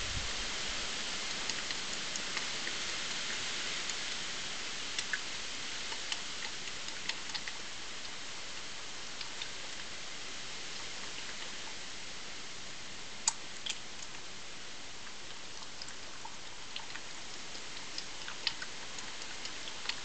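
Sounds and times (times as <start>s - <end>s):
steady hiss: 0.0s - 20.0s
animal crunching food: 4.9s - 8.2s, 9.0s - 10.0s, 13.2s - 14.3s, 15.0s - 20.0s.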